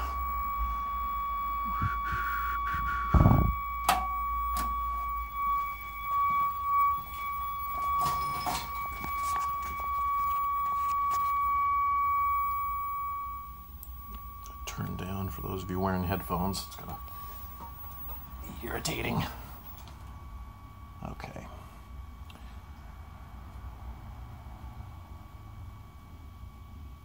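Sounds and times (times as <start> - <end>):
high-pitched test tone: 0.0 - 20.4.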